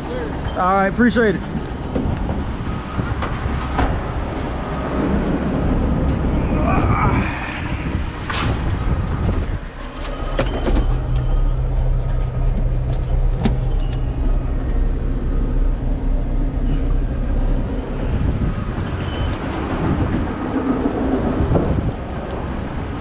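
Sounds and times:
diesel engine idling: 7.4s - 23.0s
sharp clunks and clicks: 12.0s - 14.1s.

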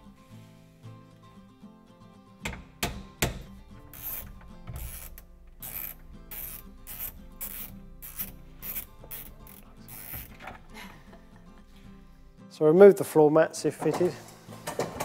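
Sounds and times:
sharp metal knocks: 2.4s - 3.6s
ratchet wrench clicking: 3.9s - 10.4s.

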